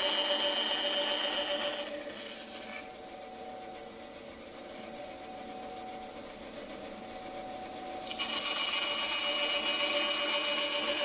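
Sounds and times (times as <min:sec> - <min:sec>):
bandsaw motor hum: 0:00.0 - 0:11.0.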